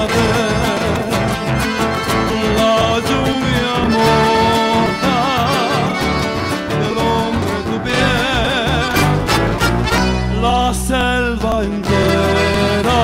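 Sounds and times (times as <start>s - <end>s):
accordion melody: 0.0s - 13.0s
steady bass beat: 0.0s - 13.0s
strummed acoustic guitars: 0.0s - 13.0s.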